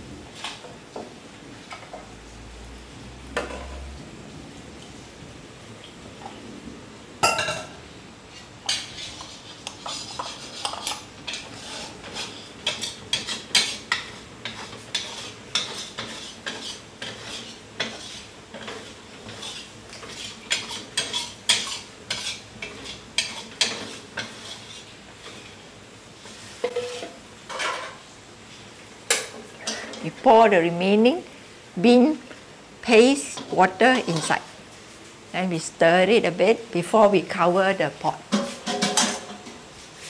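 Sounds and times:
metal spoon scraping bowl: 8.6 - 24.8, 26.6 - 27.8, 33.4 - 34.4.

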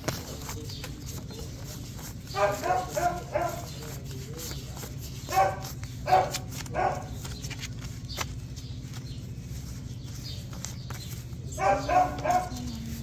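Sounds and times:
steady low hum: 0.0 - 13.0
dog barking: 2.3 - 3.8, 5.3 - 7.2, 11.5 - 12.9.

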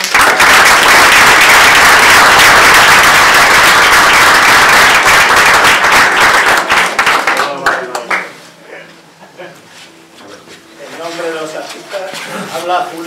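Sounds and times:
small group applauding: 0.0 - 8.4.

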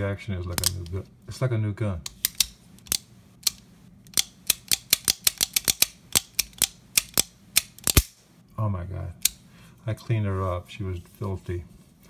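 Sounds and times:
revolver action metallic clicks: 2.0 - 8.2.

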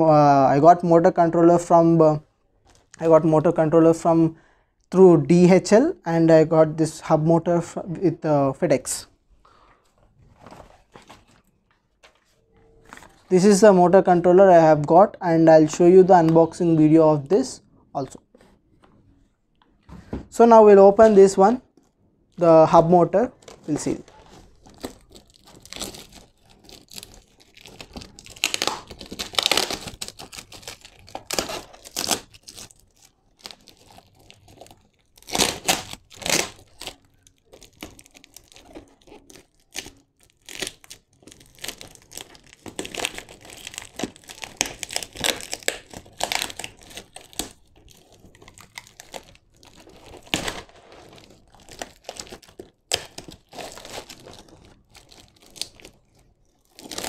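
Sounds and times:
plastic wrapping crinkling: 22.8 - 57.0
packing tape tearing: 24.2 - 57.0.

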